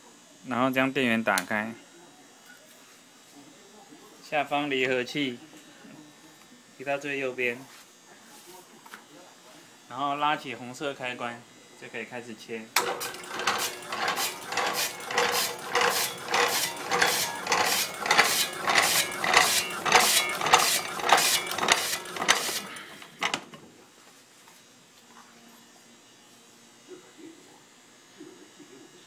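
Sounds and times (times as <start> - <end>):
slicer blade cutting ham: 12.8 - 23.1.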